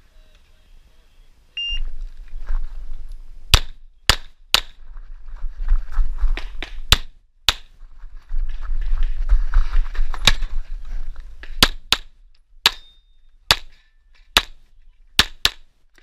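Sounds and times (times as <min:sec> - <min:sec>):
movement noise: 0:01.8 - 0:03.5, 0:04.8 - 0:06.9, 0:07.7 - 0:11.6
steel target ringing: 0:12.7 - 0:13.1.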